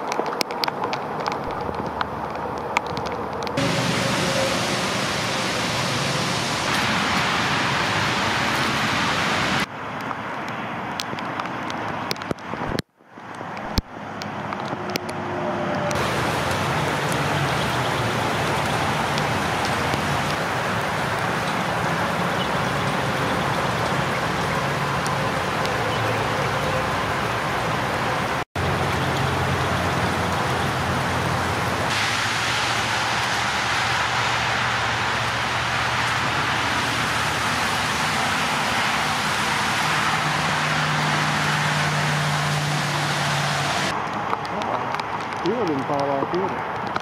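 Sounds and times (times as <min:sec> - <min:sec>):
rain falling: 0:00.0 - 0:47.0
car tyres hissing on wet road: 0:03.6 - 0:09.7, 0:15.9 - 0:44.7.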